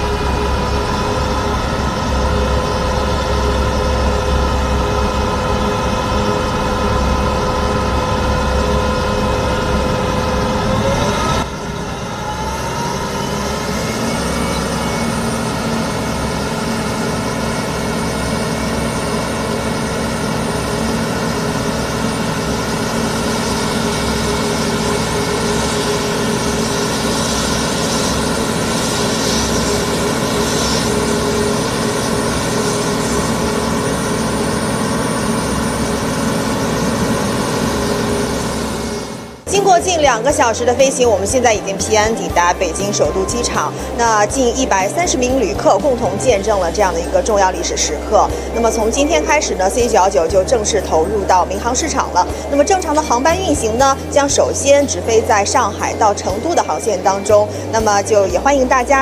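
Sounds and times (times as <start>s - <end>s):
heavy truck engine drone: 0.0s - 59.0s
water cannon spraying: 21.3s - 37.0s.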